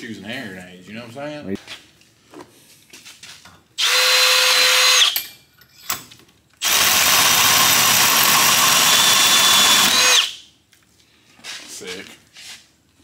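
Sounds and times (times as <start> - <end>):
cordless drill boring: 3.8 - 5.2, 6.6 - 10.4.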